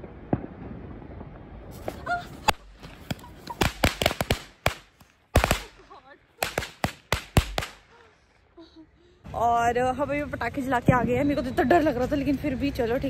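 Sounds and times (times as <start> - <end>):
firecrackers banging: 0.0 - 8.2.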